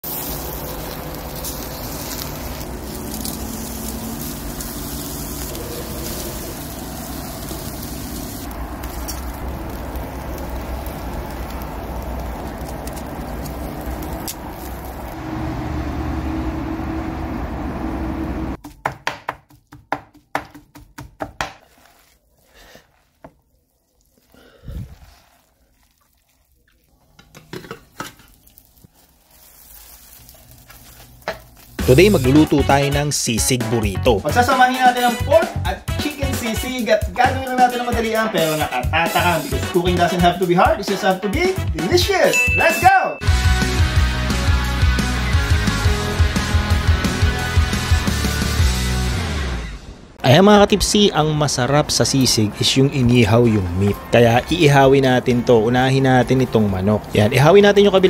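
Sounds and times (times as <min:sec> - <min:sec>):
meat sizzling on a grill: 0:00.0 - 0:15.2, 0:27.6 - 0:33.0, 0:36.1 - 0:41.0, 0:52.0 - 0:58.0.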